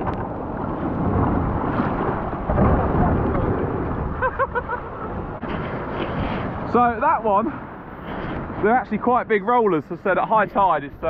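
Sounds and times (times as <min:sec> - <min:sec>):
surf breaking on shingle beach: 0:00.0 - 0:08.8
wind on microphone: 0:00.0 - 0:09.8.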